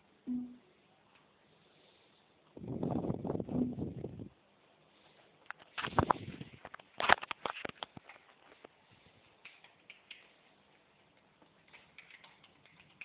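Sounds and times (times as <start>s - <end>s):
kitten claws clicking on laptop: 9.4s - 13.0s.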